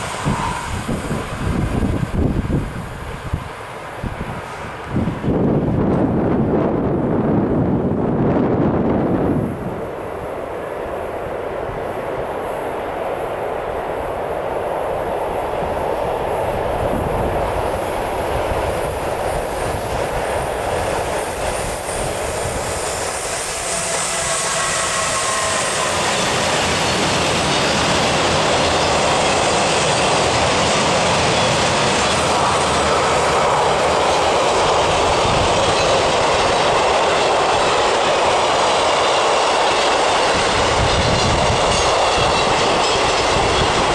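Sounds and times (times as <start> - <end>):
faint wheel squeal: 0.0 - 1.1, 23.1 - 26.4
freight train wheel noise: 0.0 - 43.9.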